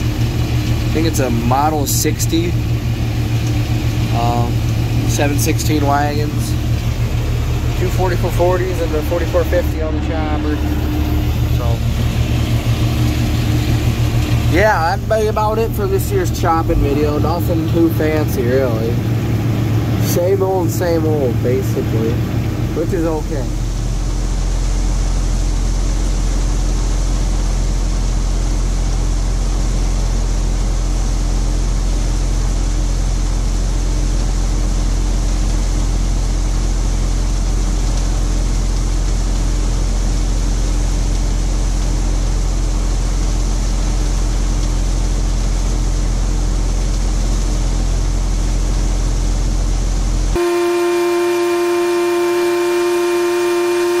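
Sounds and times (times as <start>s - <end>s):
forage blower running: 0.0s - 24.9s, 50.2s - 54.0s
tractor running under load: 0.0s - 26.3s
horn-like held tone: 4.2s - 14.3s, 50.3s - 54.0s.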